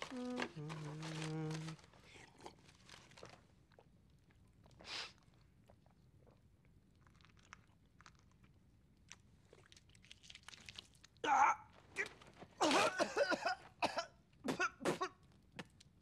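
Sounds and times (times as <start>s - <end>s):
man chewing food: 0.0s - 11.0s
man coughing: 12.6s - 15.2s.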